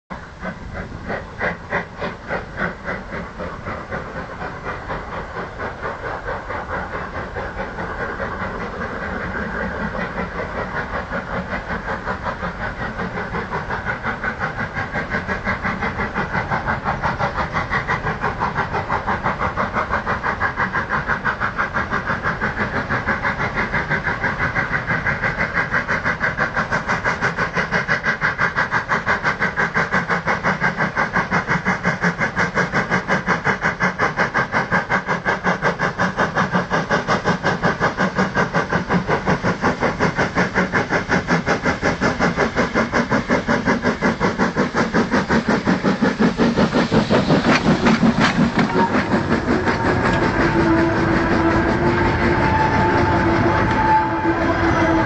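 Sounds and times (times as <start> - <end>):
steam locomotive chuffing: 0.1 - 55.0.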